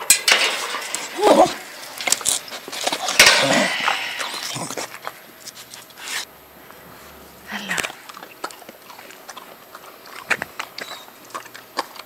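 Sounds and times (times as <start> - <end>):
metal kennel gate rattling: 0.0 - 4.8
dog whining: 1.2 - 1.6, 10.8 - 11.2.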